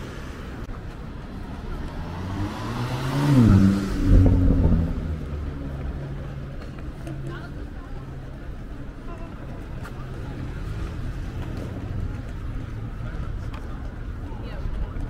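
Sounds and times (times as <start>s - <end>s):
city traffic: 0.0s - 15.0s
car driving past: 1.3s - 6.5s.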